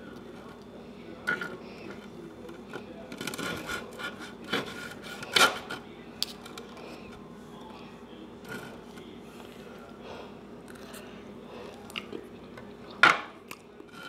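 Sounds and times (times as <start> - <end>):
knife sawing through crust: 3.3 - 5.7.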